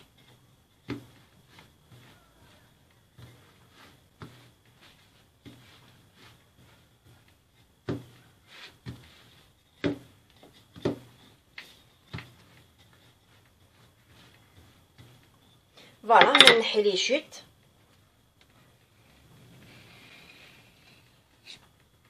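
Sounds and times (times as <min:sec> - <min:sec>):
rolling pin rubbing dough: 0:00.0 - 0:16.5, 0:17.4 - 0:22.0
rolling pin knocking on stone: 0:00.8 - 0:01.3, 0:07.8 - 0:08.2, 0:09.8 - 0:11.3, 0:16.2 - 0:16.6.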